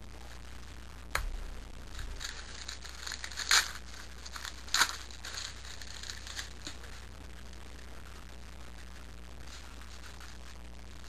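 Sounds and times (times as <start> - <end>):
loud wrapper rips: 1.9 - 6.8
foil wrapper tearing and crinkling: 1.9 - 6.9.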